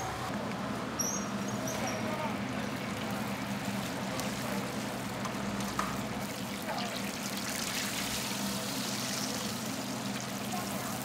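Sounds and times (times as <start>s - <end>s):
food deep-frying in oil: 2.4s - 11.0s.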